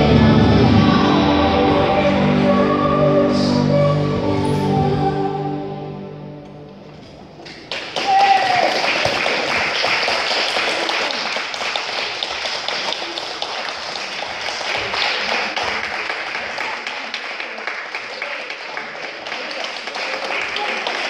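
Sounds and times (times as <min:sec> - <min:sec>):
audience applauding: 0:07.4 - 0:21.0.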